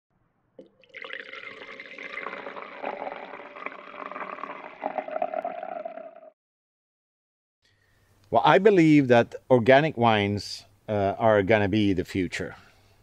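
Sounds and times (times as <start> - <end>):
liquid pouring into container: 0.6 - 6.3.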